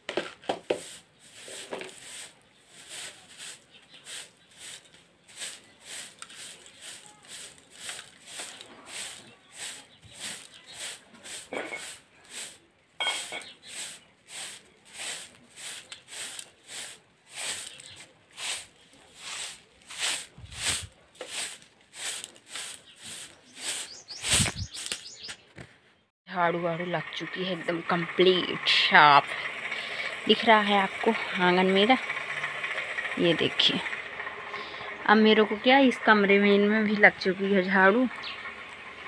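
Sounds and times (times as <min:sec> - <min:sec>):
broom sweeping hard floor: 0:00.2 - 0:25.3.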